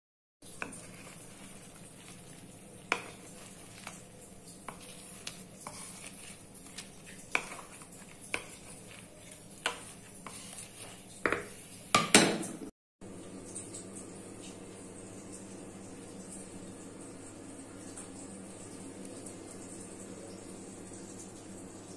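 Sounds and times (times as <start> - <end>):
utensil scraping a pan: 0.5 - 12.2.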